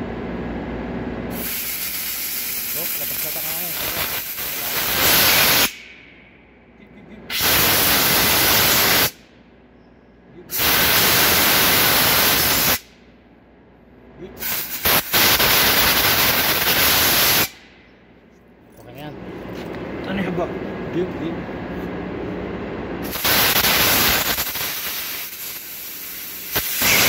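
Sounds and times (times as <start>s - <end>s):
compressed air hissing: 1.3s - 5.9s, 7.3s - 9.2s, 10.5s - 12.9s, 14.4s - 17.6s, 23.0s - 27.0s.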